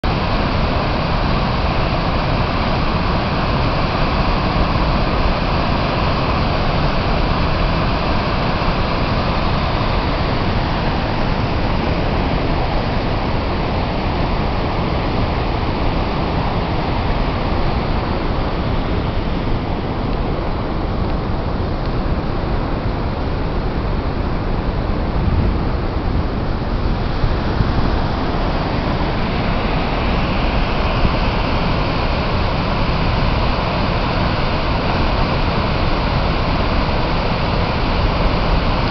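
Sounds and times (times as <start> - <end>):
waterfall rushing: 0.0 - 38.9.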